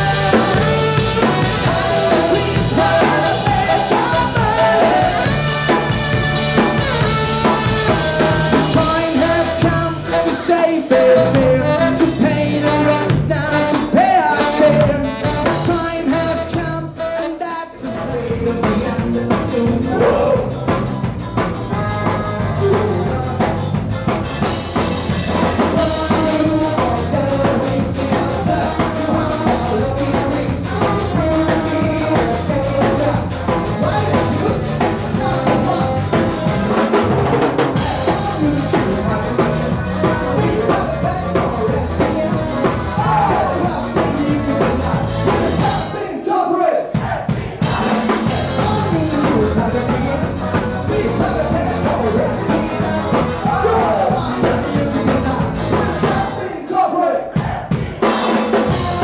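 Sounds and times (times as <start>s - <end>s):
saxophone: 0.0s - 13.1s, 13.7s - 17.4s
accordion: 0.0s - 45.9s, 47.7s - 56.5s
drum kit: 0.0s - 46.2s, 46.8s - 59.0s
live band playing: 0.0s - 46.2s, 46.9s - 56.6s, 57.3s - 59.0s.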